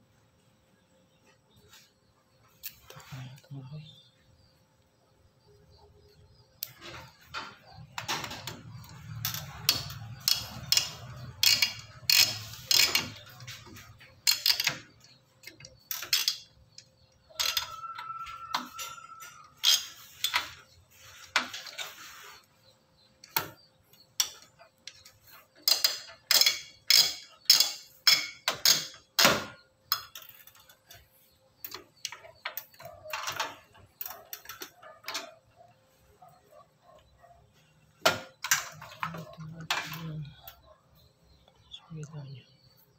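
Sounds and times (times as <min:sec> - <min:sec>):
cables and connectors clicking and rattling: 0:06.0 - 0:41.7.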